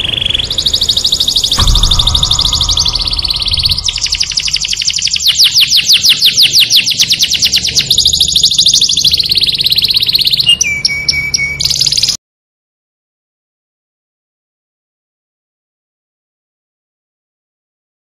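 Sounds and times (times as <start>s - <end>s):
songbird trilling: 0.0s - 12.2s.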